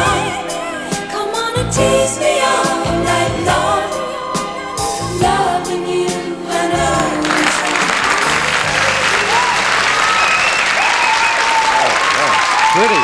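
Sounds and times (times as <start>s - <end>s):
woman singing soul ballad: 0.0s - 4.4s
audience applauding: 7.0s - 13.0s.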